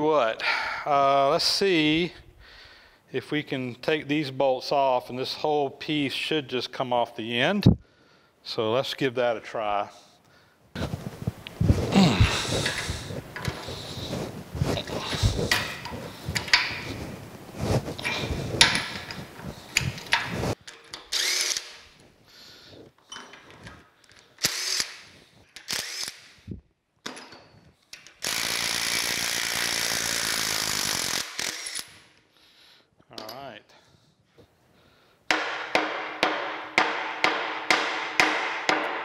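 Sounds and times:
metal clanks and rattles: 18.0 - 21.1.

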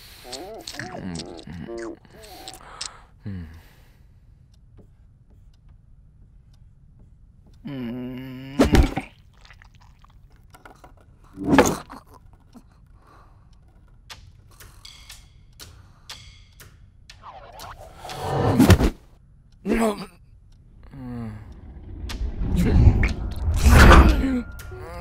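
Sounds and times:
low pitched drone: 20.6 - 25.0.

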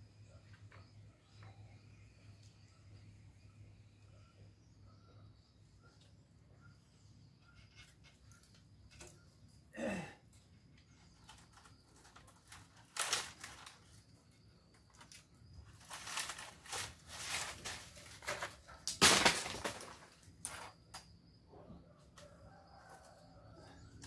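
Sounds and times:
faint high chirping: 0.0 - 18.8
rustling: 11.0 - 20.7.

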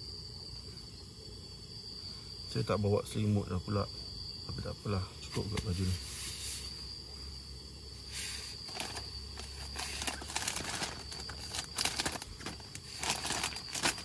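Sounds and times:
insect chirr: 0.0 - 14.0
plastic bags rustling and crinkling: 8.2 - 14.0.

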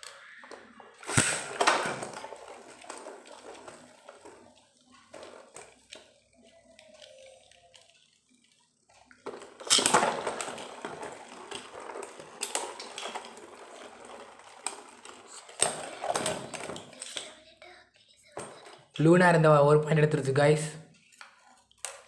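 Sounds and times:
tops clattering and colliding: 0.0 - 4.4, 9.2 - 17.3
spinning tops whirring: 0.9 - 4.5.

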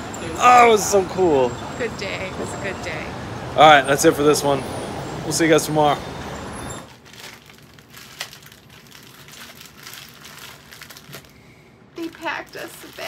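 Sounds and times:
city street traffic: 0.0 - 7.0
plastic packaging crinkling: 6.9 - 11.4, 12.0 - 13.0.

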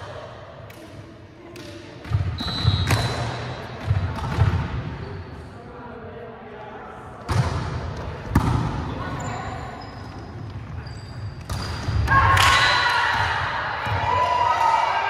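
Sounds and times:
sneaker squeaks on wooden floor: 2.3 - 3.5, 9.0 - 12.0.

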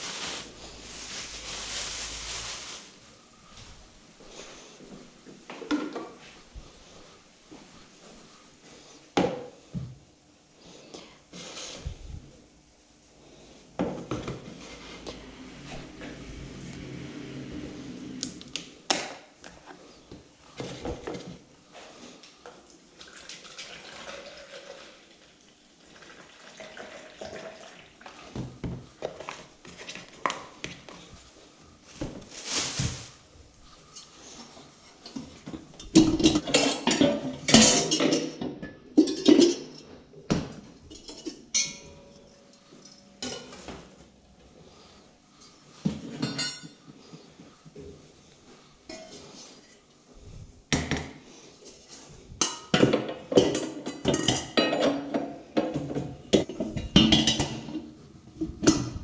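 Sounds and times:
dishes and pans clattering: 35.0 - 42.2, 43.2 - 43.8, 45.9 - 46.8, 48.9 - 49.5, 52.3 - 57.9.

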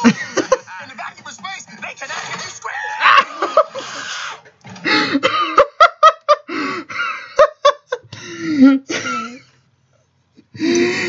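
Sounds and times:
man laughing hard: 0.0 - 0.7, 2.7 - 4.0, 4.9 - 9.4.

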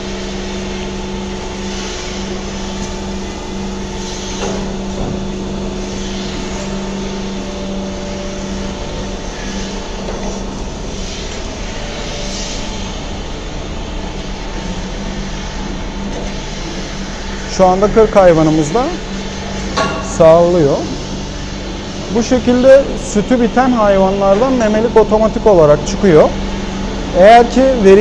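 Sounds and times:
milking machine humming: 0.0 - 28.0.

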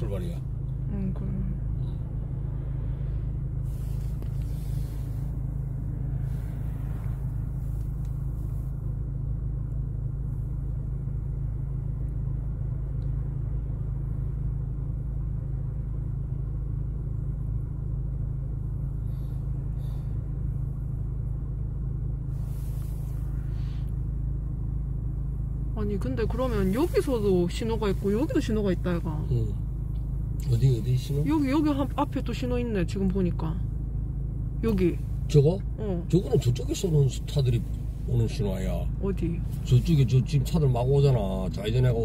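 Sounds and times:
car engine rumble from inside: 0.0 - 42.0.

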